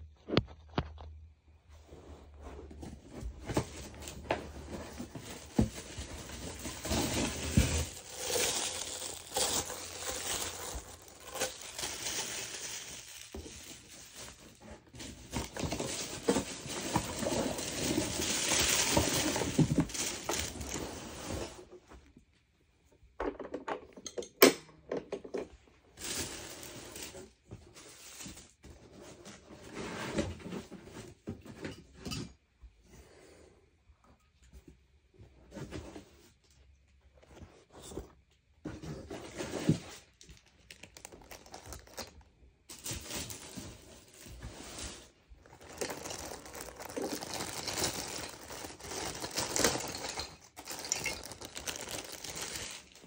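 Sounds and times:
cardboard scraping: 1.8 - 21.7
packing paper rustling: 3.1 - 21.5, 26.0 - 28.6, 39.3 - 53.0.

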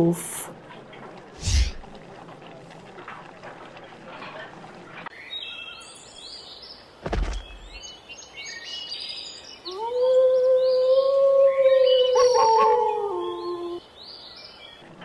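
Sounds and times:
birds chirping: 5.1 - 15.0
low thump: 7.0 - 7.8
wolf howling: 9.7 - 13.8.

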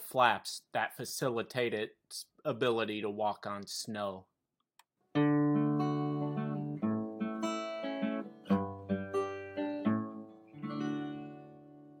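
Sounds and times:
acoustic guitar music: 5.1 - 12.0.

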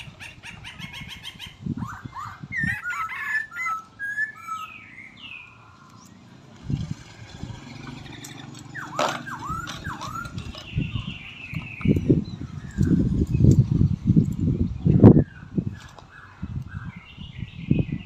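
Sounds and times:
bird chirps: 0.0 - 6.4, 7.6 - 13.9
sliding bird calls: 0.0 - 13.7.

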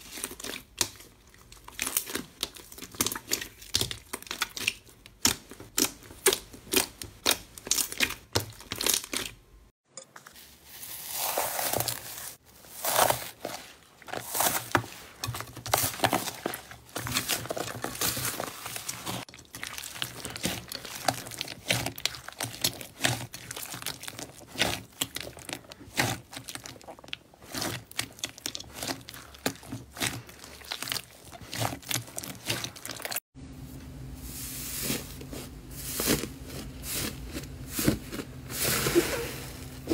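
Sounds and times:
slime squishing and popping: 0.0 - 9.4, 14.1 - 33.2.

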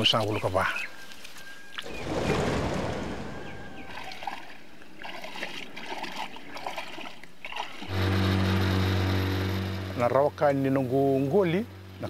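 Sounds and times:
water splashing along boat hull: 1.7 - 8.5.

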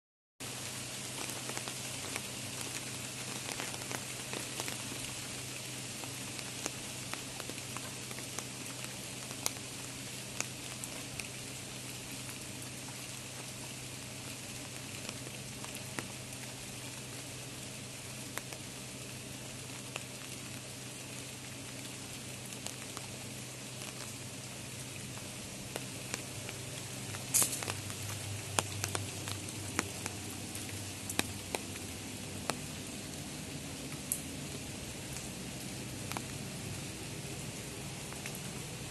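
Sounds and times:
steady rain falling: 0.4 - 38.9
drips tapping: 25.6 - 32.7.

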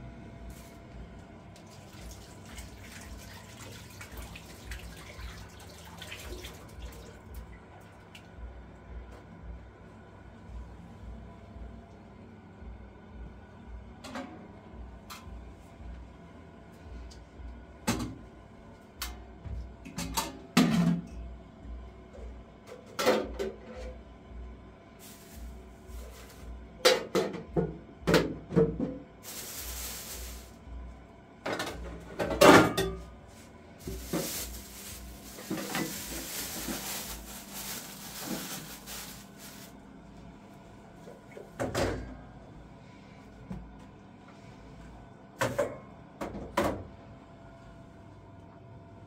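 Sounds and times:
plastic bag rustling: 25.0 - 26.5, 29.2 - 30.6, 33.8 - 39.8.

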